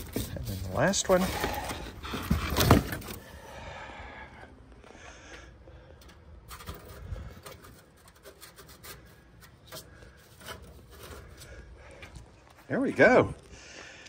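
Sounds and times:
metal scraping against metal: 0:06.0 - 0:11.7.

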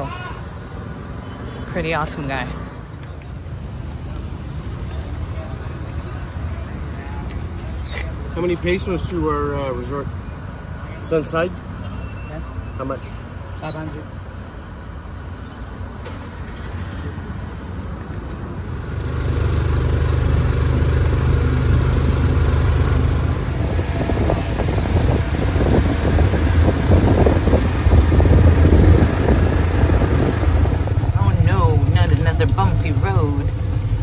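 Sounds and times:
motorcycle engine rumbling: 0:18.6 - 0:34.0.

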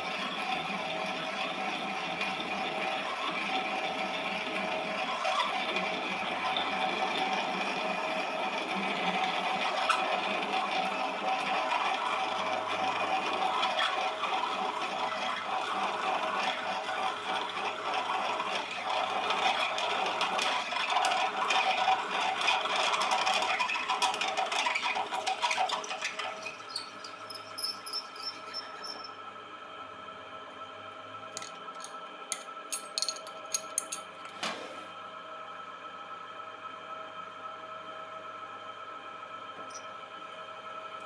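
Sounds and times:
metal lathe drilling steel: 0:24.9 - 0:29.1
high chirping squeak: 0:26.4 - 0:29.1.

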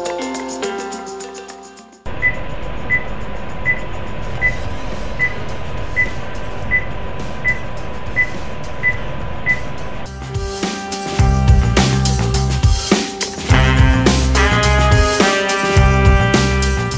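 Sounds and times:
heart-rate monitor beeping: 0:02.1 - 0:10.1
low hum and hiss: 0:02.1 - 0:10.1.

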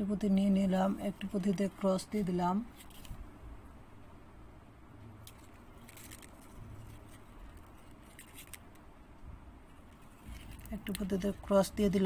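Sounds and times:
low steady hum: 0:00.0 - 0:12.0
thread rubbing: 0:00.8 - 0:03.2, 0:05.2 - 0:08.8, 0:09.6 - 0:11.6.

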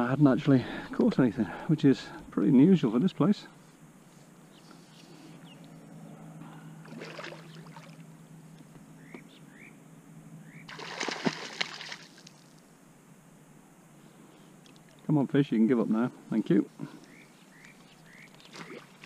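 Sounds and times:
fish splashing in water: 0:06.8 - 0:08.0, 0:10.7 - 0:12.6, 0:18.4 - 0:19.0.

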